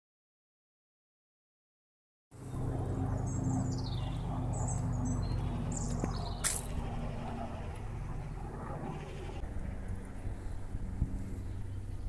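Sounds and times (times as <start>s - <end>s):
steady low hum: 2.4s - 12.0s
small birds chirping: 3.1s - 9.4s.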